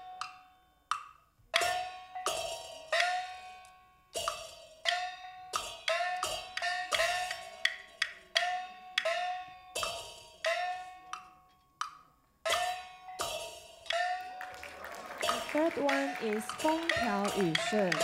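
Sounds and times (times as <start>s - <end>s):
sharp percussion strikes ringing: 12.5s - 18.0s.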